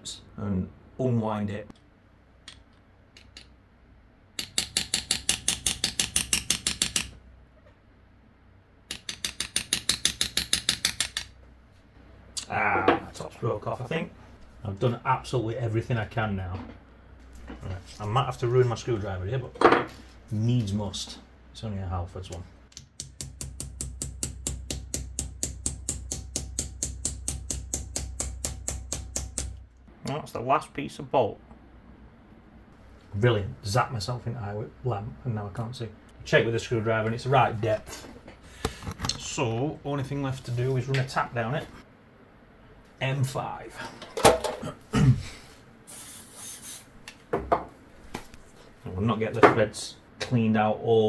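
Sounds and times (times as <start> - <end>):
rapid metal-on-metal taps: 4.4 - 7.2, 8.9 - 11.3, 22.7 - 29.6.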